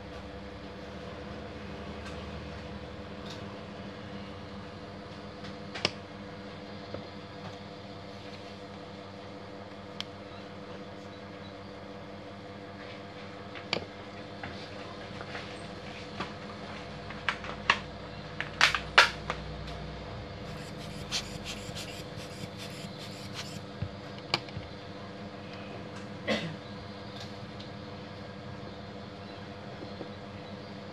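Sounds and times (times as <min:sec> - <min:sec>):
steady hum: 0:19.9 - 0:25.6.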